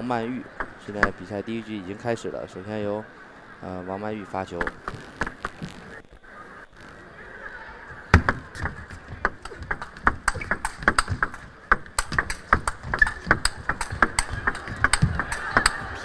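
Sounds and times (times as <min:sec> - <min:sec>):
table tennis ball hits: 0:08.2 - 0:16.0.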